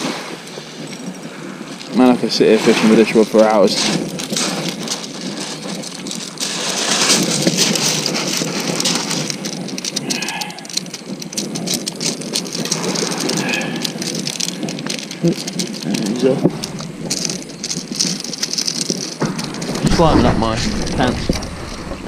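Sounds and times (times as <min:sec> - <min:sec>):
fish flapping on stones: 0:00.0 - 0:22.0
pebbles clattering and crunching: 0:00.0 - 0:22.0.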